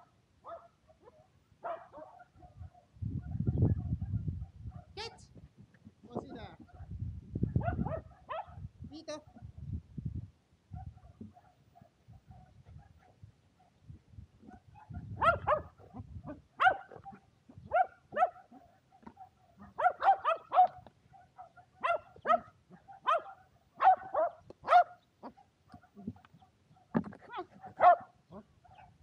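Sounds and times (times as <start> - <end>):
dog barking sharply: 0.5 - 2.9, 7.6 - 8.6, 14.5 - 15.8, 16.6 - 25.9, 27.3 - 28.9.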